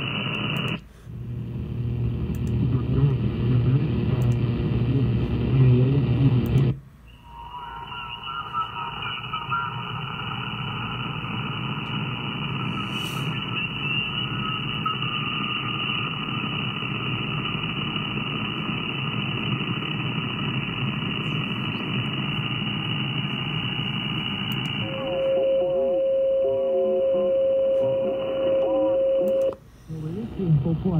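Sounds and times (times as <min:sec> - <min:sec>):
radio static hiss and rumble: 0:00.0 - 0:30.9
faint whistle tones: 0:07.0 - 0:09.2.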